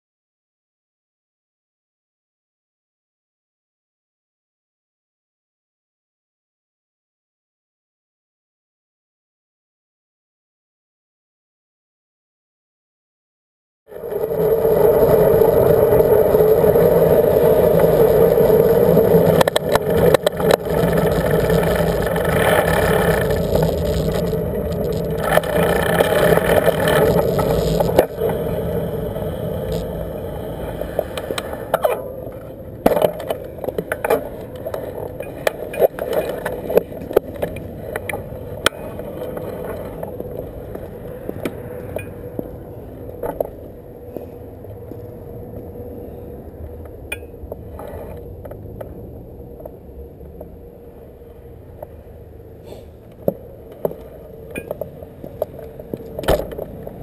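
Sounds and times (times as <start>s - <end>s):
bicycle tyre and road noise: 13.9s - 57.0s.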